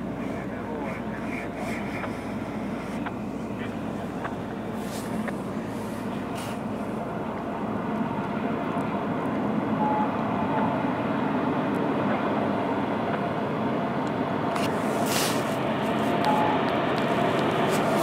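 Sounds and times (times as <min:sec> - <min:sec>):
diesel locomotive engine rumble: 0:00.0 - 0:18.0.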